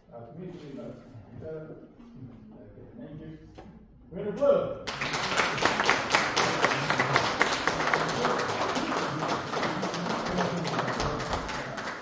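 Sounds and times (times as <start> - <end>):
spectators applauding: 4.9 - 12.0.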